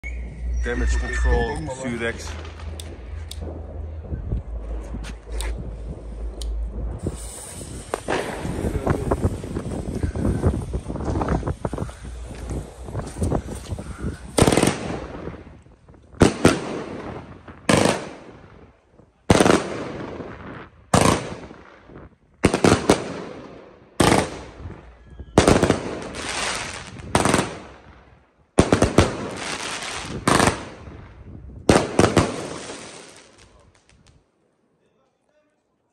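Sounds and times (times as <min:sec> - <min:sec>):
crackle of bursting stars: 0:00.4 - 0:18.9
firework bangs: 0:01.8 - 0:34.1.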